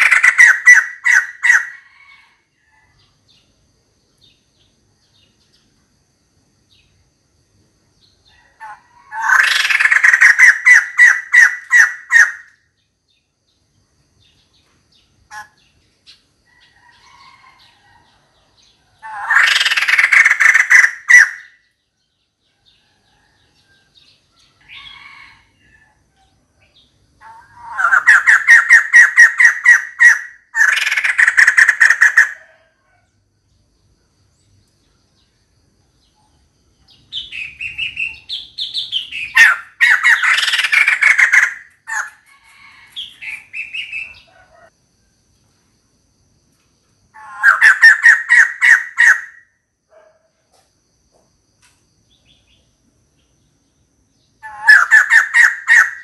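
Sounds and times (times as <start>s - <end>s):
bird harsh repeated calls: 0.0s - 2.4s, 8.4s - 12.8s, 15.3s - 17.7s, 19.0s - 21.8s, 26.6s - 32.7s, 37.1s - 44.7s, 47.1s - 50.2s, 54.4s - 56.0s.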